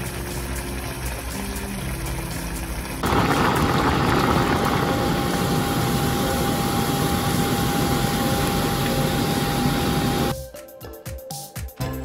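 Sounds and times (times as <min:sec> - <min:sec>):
stew boiling and bubbling: 0:00.0 - 0:10.3.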